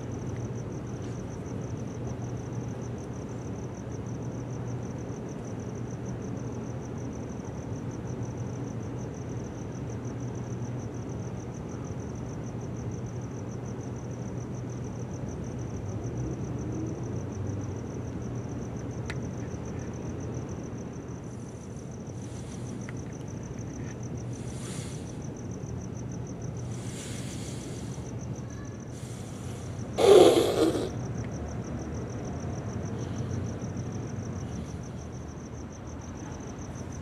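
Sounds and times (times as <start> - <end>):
cricket chirping: 0.0 - 37.0.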